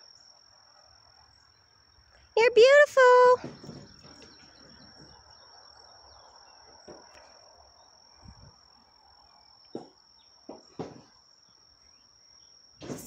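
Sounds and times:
faint outdoor ambience: 0.0s - 13.0s
soft thumps: 9.7s - 11.1s.

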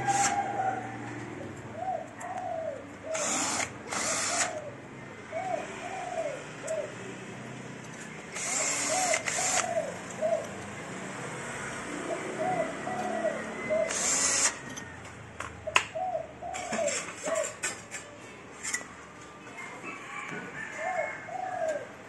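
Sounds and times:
cordless drill driving screws: 0.0s - 0.4s, 3.1s - 4.6s, 8.3s - 9.7s, 13.9s - 14.6s
pigeons cooing: 0.0s - 7.1s, 8.5s - 10.6s, 11.7s - 15.0s, 15.6s - 17.8s, 20.0s - 22.0s.

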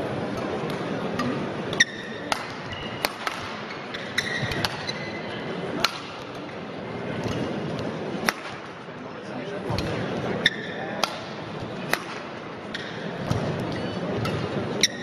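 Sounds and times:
murmur of large hall: 0.0s - 15.0s
racket hitting shuttlecock: 0.6s - 5.0s, 5.8s - 6.5s, 7.2s - 8.8s, 9.7s - 15.0s
shoe squeaks on court floor: 3.6s - 5.4s.

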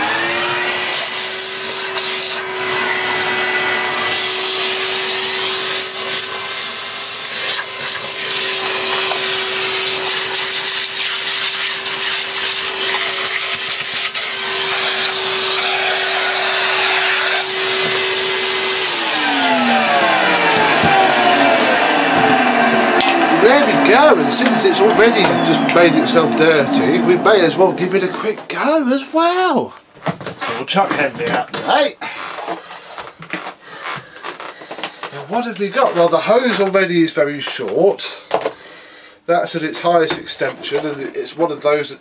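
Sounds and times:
vacuum motor winding down: 0.0s - 28.4s
vacuum cleaner running: 0.0s - 28.8s.

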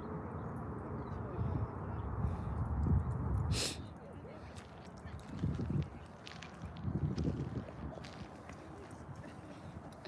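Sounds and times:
wind buffeting microphone: 1.0s - 10.0s
footsteps on gravel: 4.5s - 10.0s.

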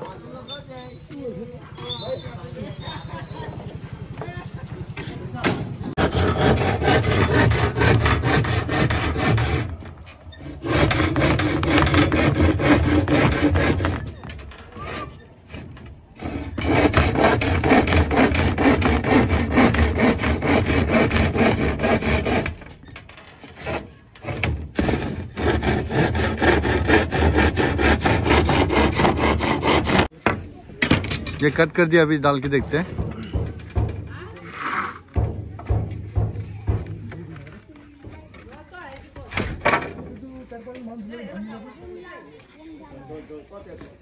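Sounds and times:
hand saw cutting plywood: 5.8s - 30.2s, 32.4s - 36.8s.

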